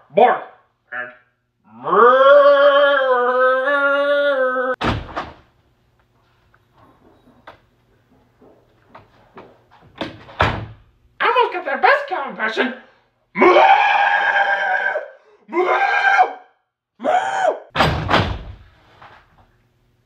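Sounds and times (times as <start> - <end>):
man imitating an animal: 0.9 - 4.8
door banging: 4.8 - 5.5, 10.0 - 10.8, 17.7 - 18.8
faint knocks and shuffles: 5.9 - 10.3.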